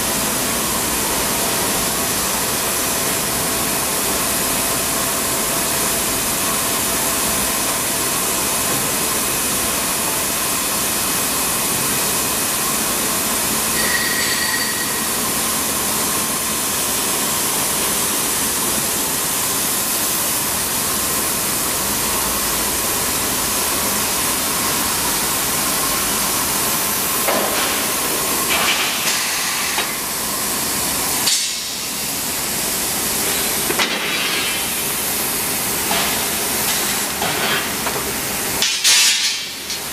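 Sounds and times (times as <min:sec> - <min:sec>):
high machine whine: 0:00.0 - 0:28.5
machine mechanical hiss: 0:23.4 - 0:39.9.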